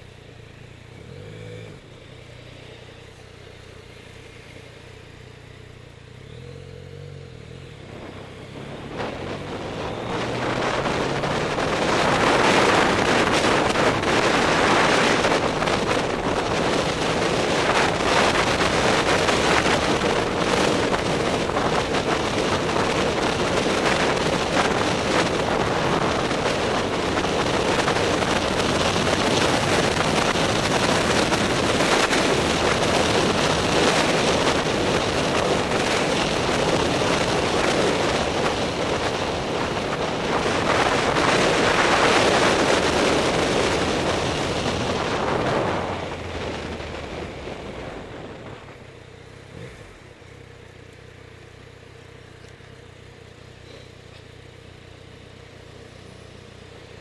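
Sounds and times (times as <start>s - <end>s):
motorcycle engine: 0.0s - 57.0s
wind noise on microphone: 7.9s - 48.9s
motorcycle engine idling: 46.2s - 57.0s.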